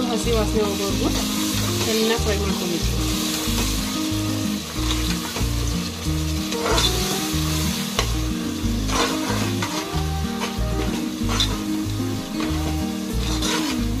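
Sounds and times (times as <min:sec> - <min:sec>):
background music with bass: 0:00.0 - 0:14.0
paste sizzling in hot oil: 0:00.0 - 0:14.0.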